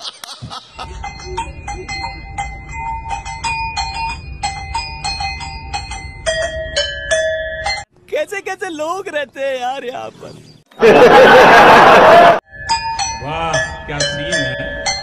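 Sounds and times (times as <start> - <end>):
metal bells ringing: 0.8 - 7.9, 12.5 - 15.0.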